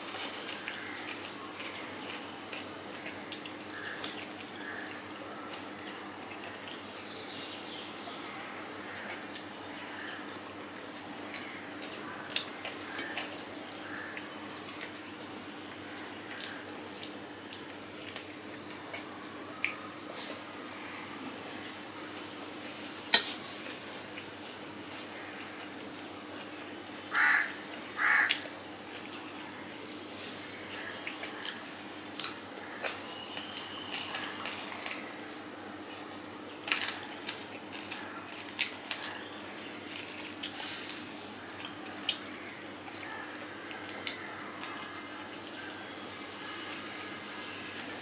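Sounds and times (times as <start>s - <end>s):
wet chewing and mouth smacking: 0.0s - 6.9s, 10.2s - 20.4s, 39.9s - 46.0s.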